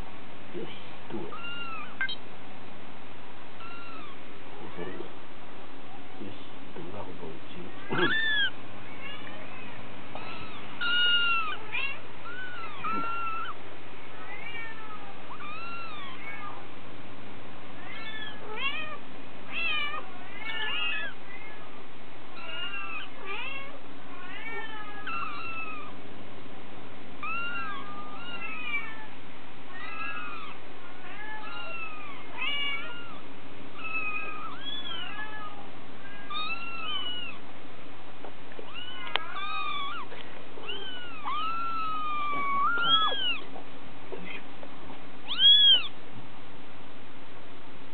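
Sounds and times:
kittens mewing: 1.1s - 2.2s, 3.5s - 5.0s, 7.6s - 16.7s, 17.8s - 26.0s, 27.2s - 37.4s, 38.6s - 43.6s, 45.2s - 46.0s.

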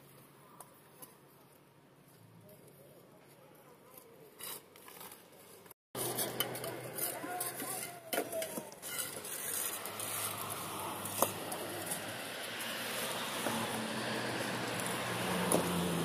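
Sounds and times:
engine hum: 6.0s - 7.8s, 9.1s - 16.0s.

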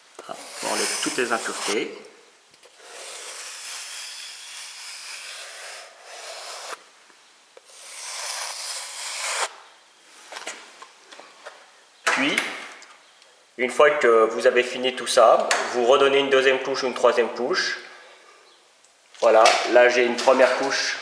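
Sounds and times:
metal spatula scraping plaster: 0.2s - 1.8s, 2.8s - 6.8s.

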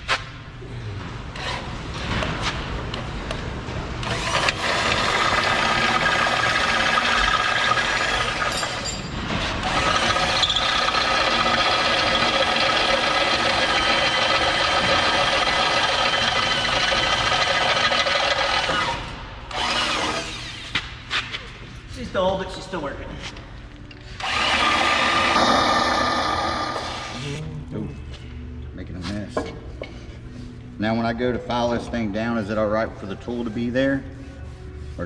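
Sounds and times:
power tool cutting metal: 9.6s - 20.6s, 24.2s - 27.4s.

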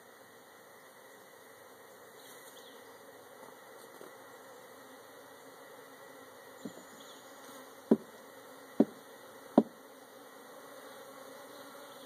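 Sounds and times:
bees humming: 0.0s - 12.0s
knocks on cardboard box: 7.9s - 8.1s, 9.6s - 9.8s.

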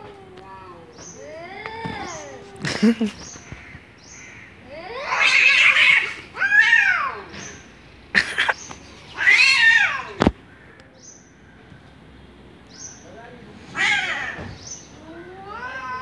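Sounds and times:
cats yowling: 0.0s - 2.9s, 4.7s - 7.6s, 9.1s - 10.3s, 13.7s - 16.0s.

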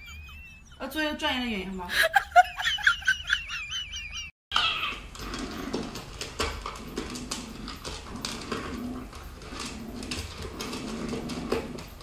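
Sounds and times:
puppy eating from plastic bowl: 5.1s - 12.0s.

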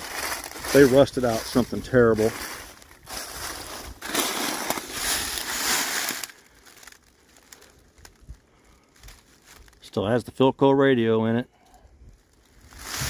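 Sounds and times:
dry leaves crunching: 0.0s - 9.9s, 12.2s - 13.0s.

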